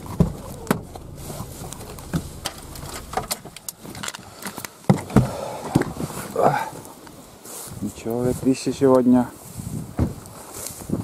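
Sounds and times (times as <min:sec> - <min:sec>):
low hum: 0:00.0 - 0:04.4.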